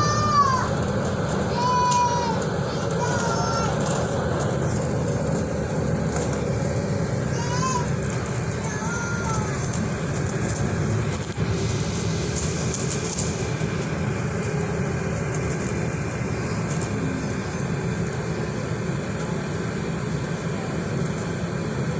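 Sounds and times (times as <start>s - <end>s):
bus engine and road rumble: 0.0s - 21.9s.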